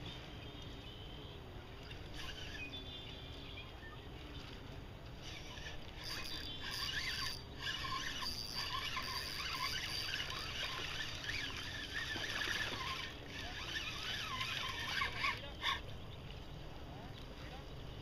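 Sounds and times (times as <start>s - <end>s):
lure gurgling on water surface: 5.3s - 15.4s.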